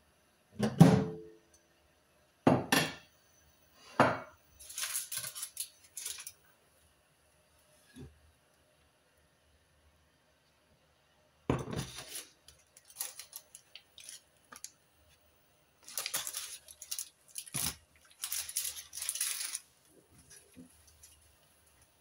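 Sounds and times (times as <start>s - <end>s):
baking paper crinkling: 4.6s - 6.4s, 11.7s - 15.2s, 15.8s - 22.0s.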